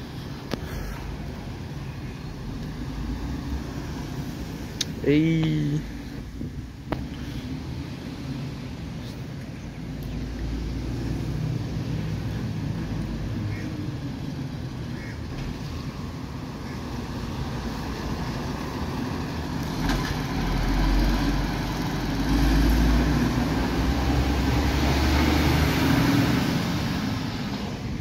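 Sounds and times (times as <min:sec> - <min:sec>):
diesel truck driving past: 0:09.9 - 0:28.0.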